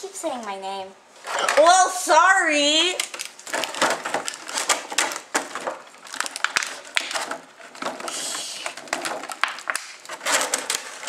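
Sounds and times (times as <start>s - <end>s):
plastic packaging crinkling: 3.0s - 11.0s.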